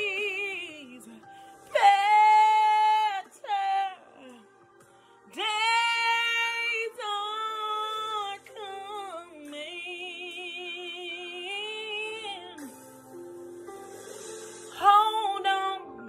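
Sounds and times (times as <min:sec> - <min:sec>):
woman singing gospel solo: 0:00.0 - 0:04.5, 0:05.3 - 0:12.7, 0:14.7 - 0:16.0.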